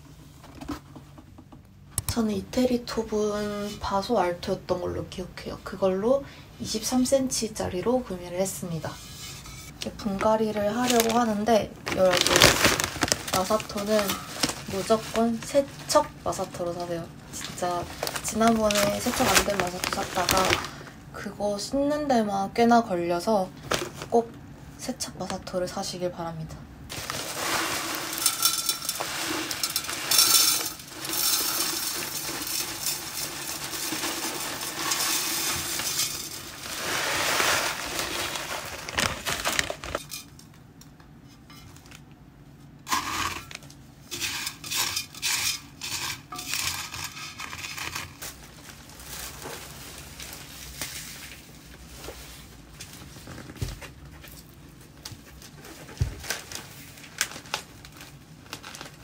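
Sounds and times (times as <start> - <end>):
grit pouring into clay pot: 26.9 - 39.3
grit clinking and rattling: 26.9 - 40.3.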